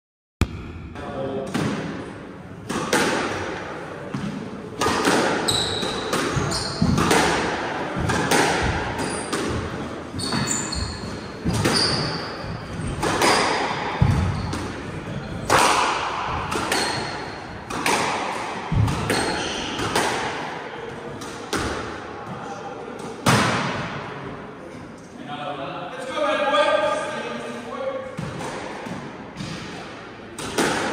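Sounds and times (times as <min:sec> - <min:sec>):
squash ball hitting rackets and walls: 0:00.4 - 0:24.1, 0:28.1 - 0:30.9
shoes squeaking on wooden floor: 0:05.5 - 0:07.0, 0:10.1 - 0:12.9.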